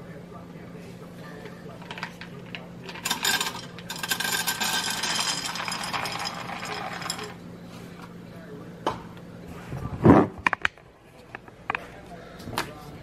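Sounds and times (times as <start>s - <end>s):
corn kernels rattling into pan: 2.9s - 7.4s.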